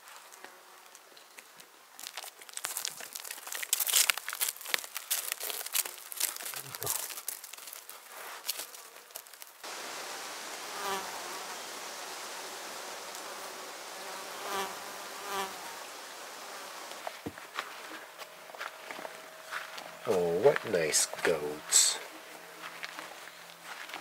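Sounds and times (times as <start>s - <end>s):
goats nibbling vegetation: 1.3s - 21.6s
insect buzzing close by: 7.9s - 18.3s
drone of buzzing insects: 8.5s - 22.9s.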